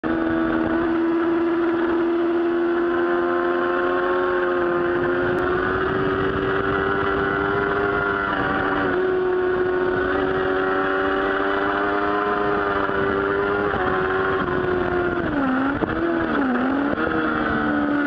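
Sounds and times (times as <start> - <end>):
motorcycle engine at high revs: 0.0 - 18.0
wind rush on microphone: 4.4 - 18.0.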